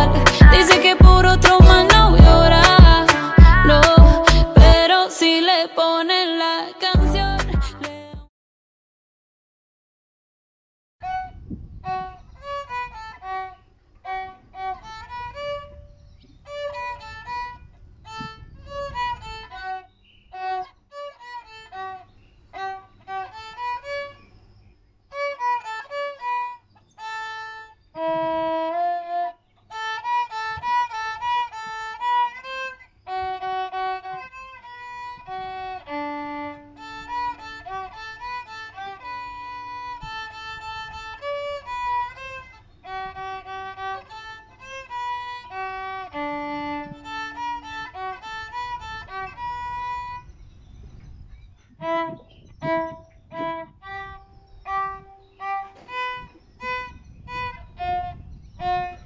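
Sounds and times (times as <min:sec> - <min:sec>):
solo violin melody: 0:00.0 - 0:04.8, 0:11.0 - 0:24.3, 0:25.1 - 0:50.4, 0:51.8 - 0:59.0.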